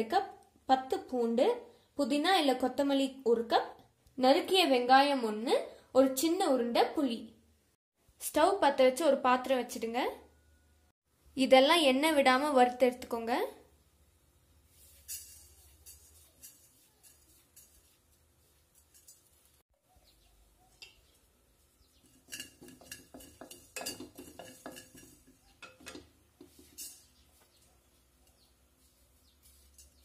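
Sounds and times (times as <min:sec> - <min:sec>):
spatula stirring dry seeds in pot: 0:14.6 - 0:19.6, 0:20.8 - 0:30.0.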